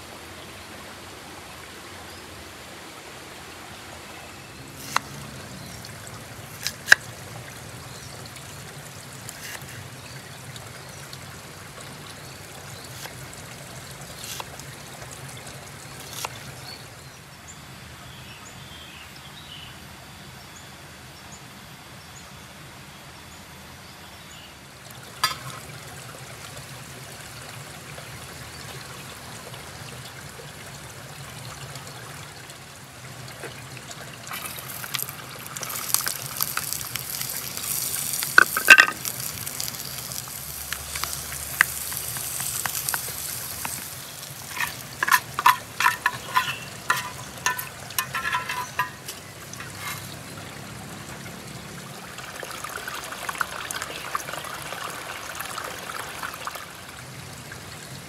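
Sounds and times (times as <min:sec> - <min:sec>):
utensil clinking on metal pan: 0:25.2 - 0:25.5, 0:44.5 - 0:50.1
food sizzling in a frying pan: 0:34.3 - 0:50.2
clicks and scrapes: 0:40.7 - 0:50.2.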